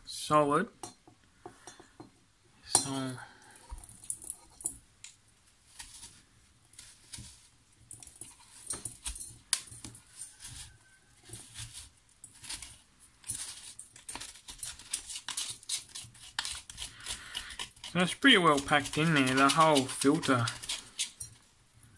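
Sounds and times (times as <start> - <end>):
metal tool scraping pellets: 7.9 - 21.4.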